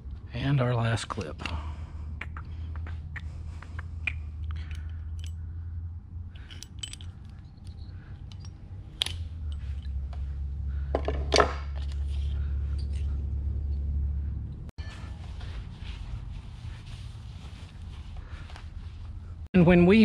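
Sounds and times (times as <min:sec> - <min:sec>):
steady low hum: 0:00.0 - 0:19.5
small metal clicks and clinks: 0:04.4 - 0:05.5, 0:06.3 - 0:10.1.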